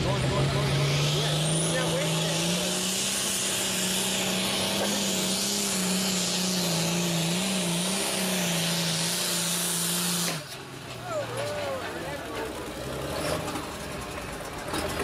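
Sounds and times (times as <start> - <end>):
tractor engine at full throttle: 0.0 - 15.0.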